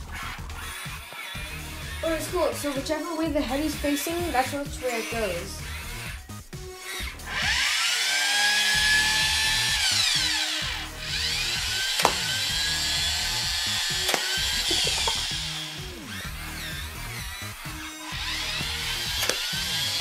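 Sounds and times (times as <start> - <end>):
toy robot motor whining: 0.0 - 20.0
sharp click: 14.1 - 14.4, 19.2 - 19.5.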